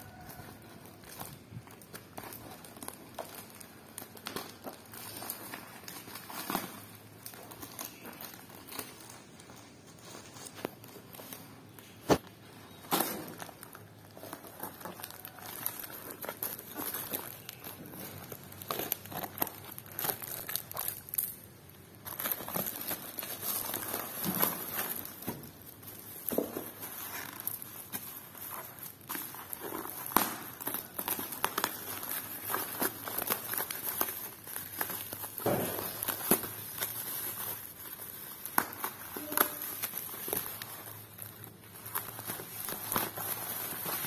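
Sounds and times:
plastic wrapping crinkling: 0.0 - 44.0
scissors cutting plastic: 22.2 - 44.0.

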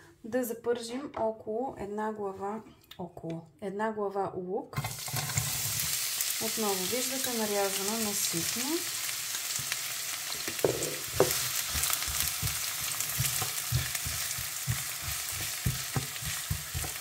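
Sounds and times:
spatula scraping and knocking pan: 4.8 - 5.9, 9.6 - 17.0
onion sizzling in hot oil: 4.8 - 17.0.

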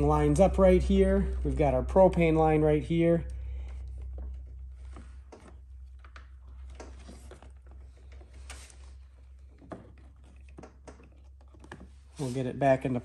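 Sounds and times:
steady low hum: 0.0 - 13.0
plastic rubbing: 3.6 - 13.0.

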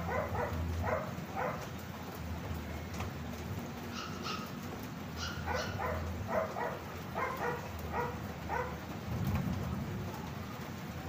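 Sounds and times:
dog barking: 0.0 - 1.7, 3.9 - 4.6, 5.2 - 8.8
rain hissing: 0.0 - 11.0.

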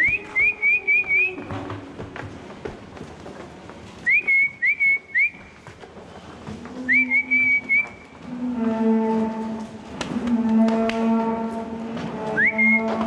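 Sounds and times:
whistled notes: 4.0 - 5.4, 12.4 - 12.9
cows mooing: 8.2 - 13.0.

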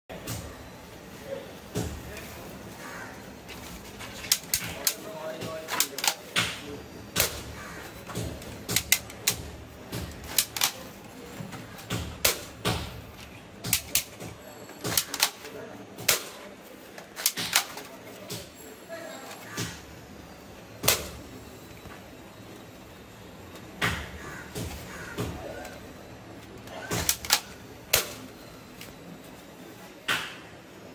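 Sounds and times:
plastic toy rifle clicking: 4.1 - 6.6, 8.1 - 9.5, 10.1 - 10.9, 13.7 - 14.2, 14.8 - 16.4, 17.2 - 17.9, 26.6 - 28.3.

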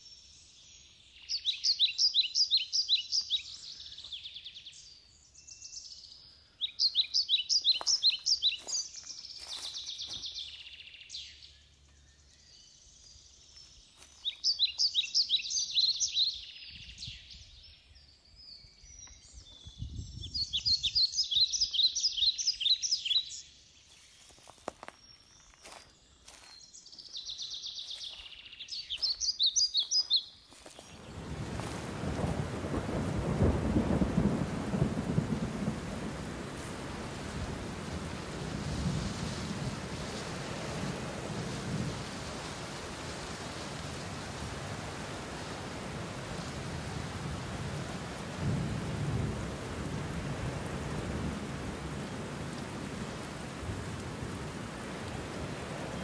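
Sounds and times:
songbirds chirping and trilling: 0.0 - 56.0
steady rushing hiss: 31.0 - 56.0.

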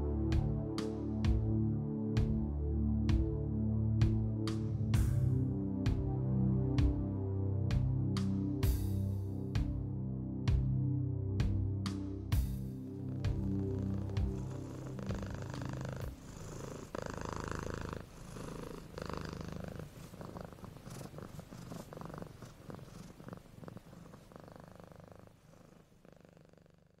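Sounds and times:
cat purring: 12.9 - 27.0.

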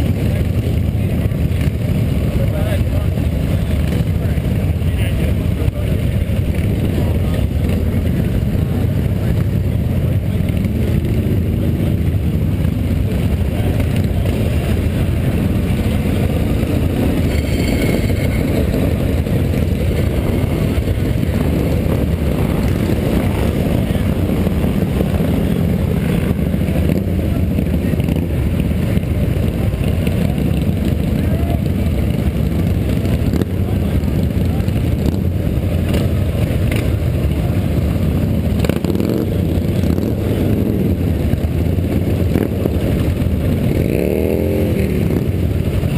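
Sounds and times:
motorcycle engines rumbling: 0.0 - 45.9.

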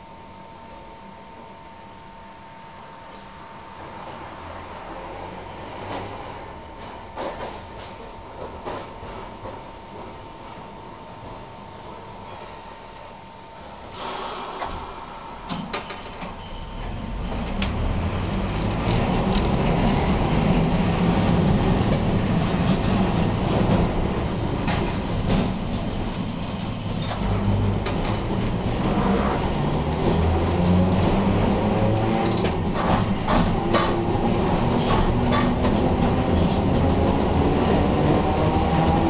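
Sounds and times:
streetcar motor growl: 16.5 - 39.0.

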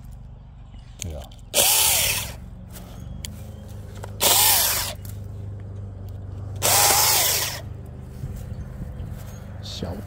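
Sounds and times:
electric saw motor: 1.5 - 2.4, 4.2 - 5.1, 6.6 - 7.7.

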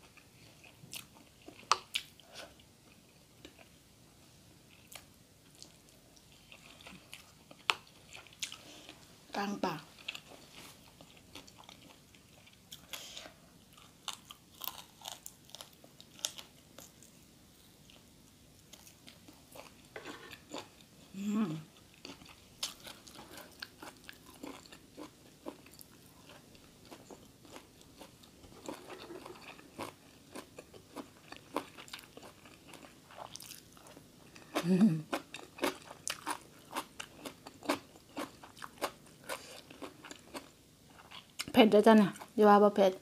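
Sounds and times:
chewing and crunching food: 0.0 - 3.7, 4.7 - 9.1, 9.9 - 17.2, 21.8 - 42.4.

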